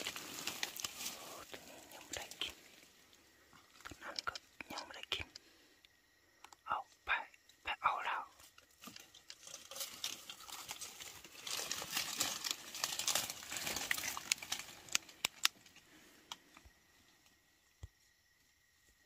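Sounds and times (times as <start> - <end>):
dry leaves rustling: 0.0 - 2.9, 8.8 - 15.8
sharp clicks: 14.2 - 16.7.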